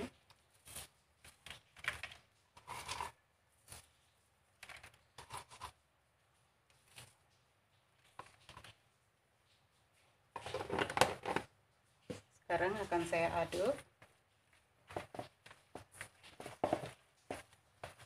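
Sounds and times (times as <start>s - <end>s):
fried shallots rustling: 0.0s - 4.1s.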